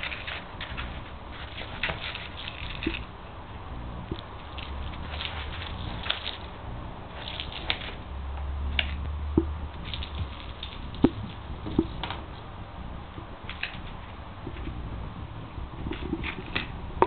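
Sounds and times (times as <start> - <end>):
animal scratching in snow: 4.6 - 6.5.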